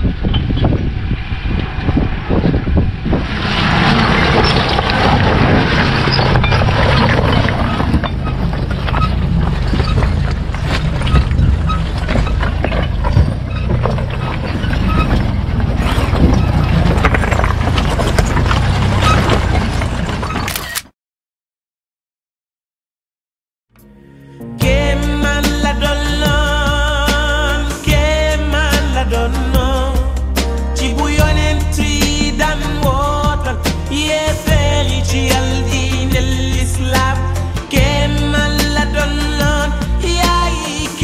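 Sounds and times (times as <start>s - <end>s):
car engine running: 0.0s - 20.4s
tyre and wind noise: 0.0s - 20.8s
bodywork rattling: 4.1s - 20.5s.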